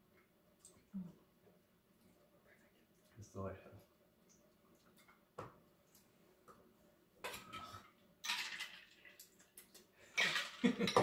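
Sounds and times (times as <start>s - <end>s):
glassware and barware clinking: 10.2s - 11.0s.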